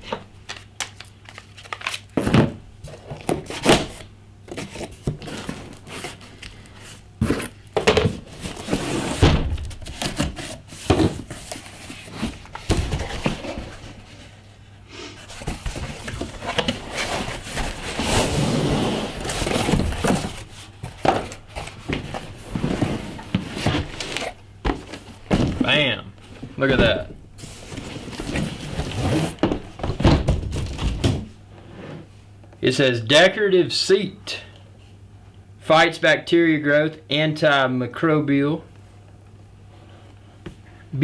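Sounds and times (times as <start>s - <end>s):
cardboard rustling and scraping: 1.3s - 32.1s.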